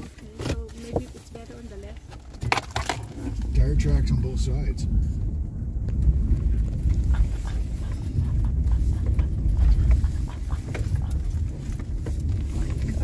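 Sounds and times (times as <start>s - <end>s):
tyres and engine rumble: 0.0s - 13.0s
light clicks and rattles: 6.8s - 13.0s.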